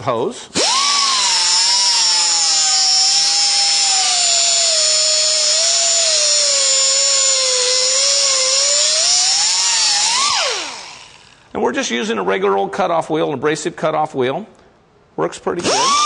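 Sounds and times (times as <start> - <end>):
cutoff wheel cutting hose: 0.6 - 11.4.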